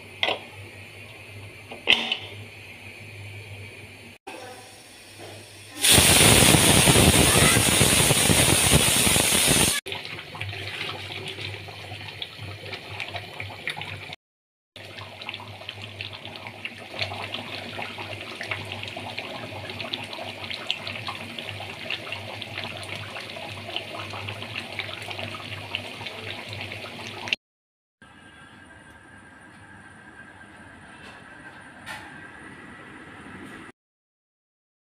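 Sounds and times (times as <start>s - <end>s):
pressure cooker hissing steam: 4.3s - 9.8s
curry bubbling in a pot: 9.9s - 14.2s, 14.8s - 27.3s.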